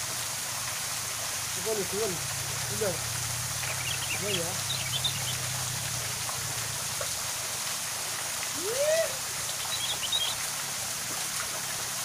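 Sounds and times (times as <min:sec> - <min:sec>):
waterfall splashing into pool: 0:00.0 - 0:12.0
rising and falling call: 0:03.6 - 0:05.8, 0:08.5 - 0:10.4
faint high bird chirps: 0:03.7 - 0:05.4, 0:09.5 - 0:10.4.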